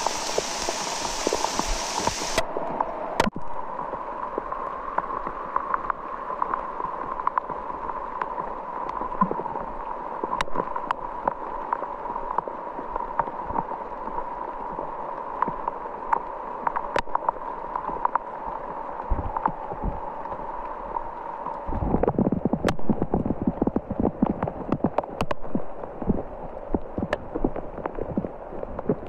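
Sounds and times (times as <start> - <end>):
water gurgling and trickling: 0.0 - 29.0
small pops and splashes: 22.0 - 26.2.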